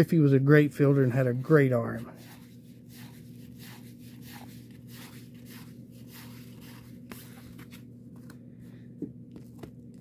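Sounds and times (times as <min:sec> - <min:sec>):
faint steady hum: 0:00.0 - 0:10.0
cards flipping with papery swish: 0:02.2 - 0:08.4.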